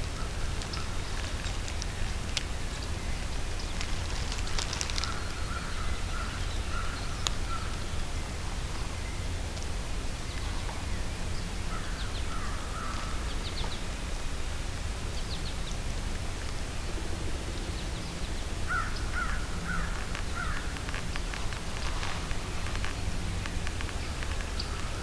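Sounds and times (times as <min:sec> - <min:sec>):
birds calling: 0:00.0 - 0:08.4, 0:17.5 - 0:25.0
steady low rumble: 0:00.0 - 0:25.0.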